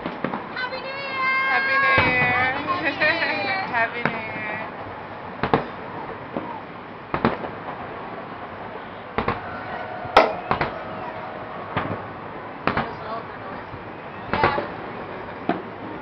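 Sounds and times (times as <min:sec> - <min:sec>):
firework shells booming: 0:03.8 - 0:16.0.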